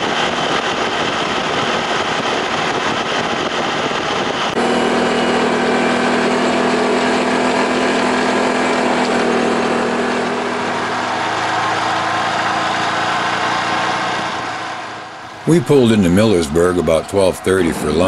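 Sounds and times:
vehicle engine running: 0:00.0 - 0:18.0
tyres on gravel road: 0:04.6 - 0:18.0.

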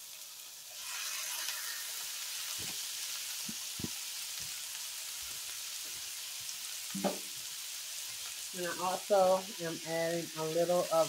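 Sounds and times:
vegetables sizzling in a skillet: 0:00.0 - 0:11.0
soft knocks in pan: 0:07.0 - 0:07.3.

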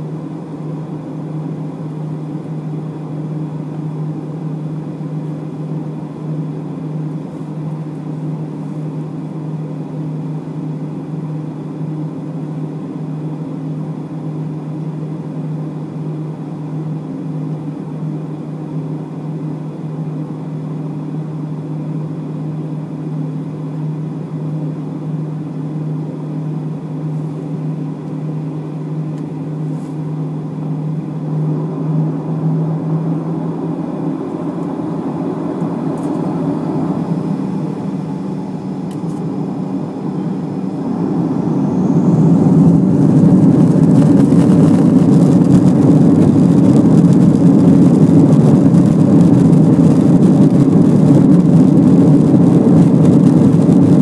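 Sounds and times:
airplane engines low hum: 0:00.0 - 0:54.0
faint rising engine whine: 0:00.0 - 0:54.0
rush of air and machinery: 0:29.6 - 0:54.0.

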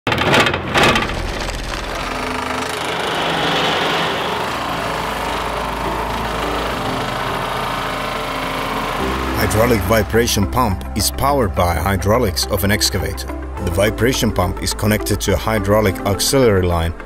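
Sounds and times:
sharp knocks: 0:00.0 - 0:09.1
excavator engine running: 0:00.0 - 0:16.2.

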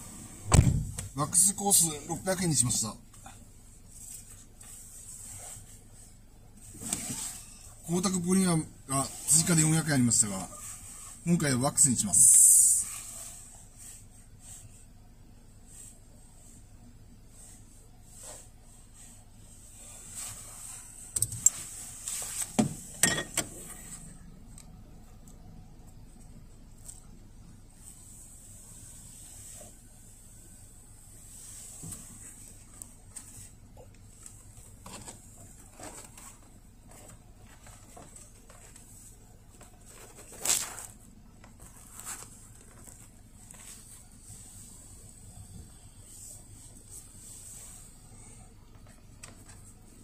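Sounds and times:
faint steady hum: 0:00.0 - 0:50.0
thin high whine: 0:06.8 - 0:14.8.

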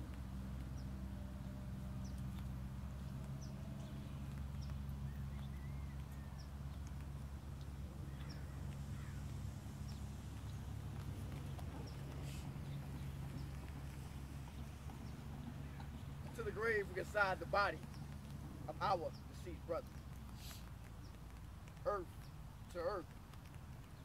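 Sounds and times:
bird chirping: 0:00.0 - 0:23.2
steady low hum: 0:00.0 - 0:24.0
bird warbling calls: 0:03.0 - 0:07.0, 0:07.6 - 0:20.7.

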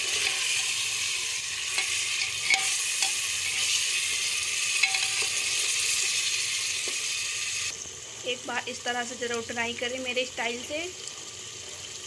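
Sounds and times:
metal ladle scraping pot: 0:00.0 - 0:06.2
meat sizzling in oil: 0:00.0 - 0:12.0.

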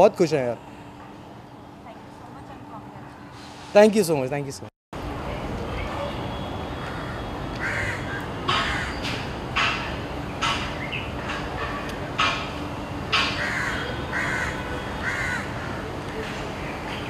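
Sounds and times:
crows cawing: 0:06.8 - 0:09.2, 0:13.2 - 0:15.9.

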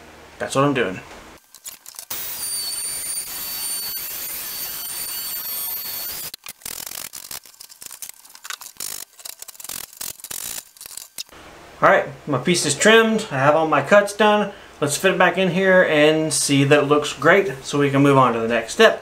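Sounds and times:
oscillating tool cutting plastic: 0:01.5 - 0:11.3.

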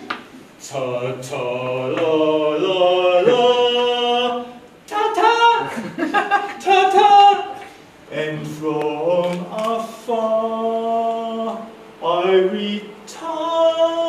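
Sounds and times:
man singing unaccompanied: 0:00.6 - 0:14.0.

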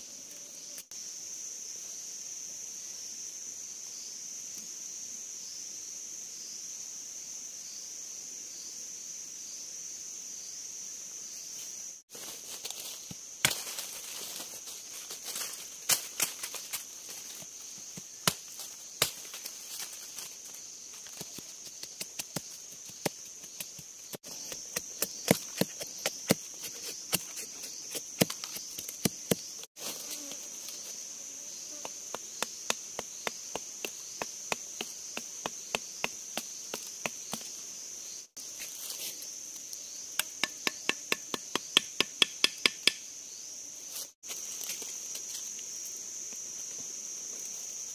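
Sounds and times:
high insect drone: 0:00.0 - 0:47.9
machete chopping wood: 0:13.4 - 0:13.8, 0:18.2 - 0:19.3, 0:40.2 - 0:43.0.

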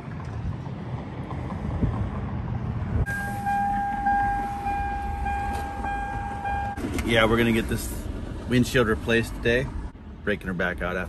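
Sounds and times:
wind noise: 0:00.0 - 0:06.8
low vehicle rumble: 0:00.0 - 0:11.0
steady high tone: 0:03.1 - 0:06.8.

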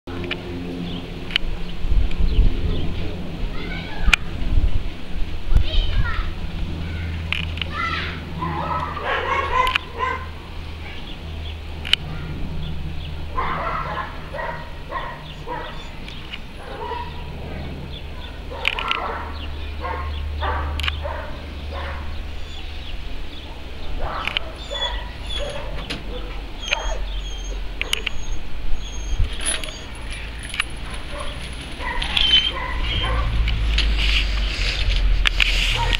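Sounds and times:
birds chirping: 0:00.1 - 0:04.3, 0:05.6 - 0:35.9
turboprop airliner droning overhead: 0:00.1 - 0:35.9
dog barking and yelping: 0:08.4 - 0:10.3, 0:13.3 - 0:16.0, 0:16.6 - 0:17.3, 0:18.2 - 0:22.7, 0:24.0 - 0:33.5.

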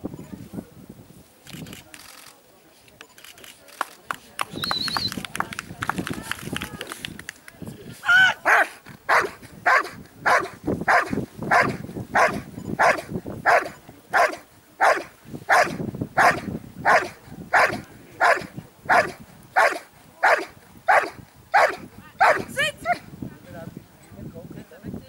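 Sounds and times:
dog barking: 0:08.1 - 0:22.5.

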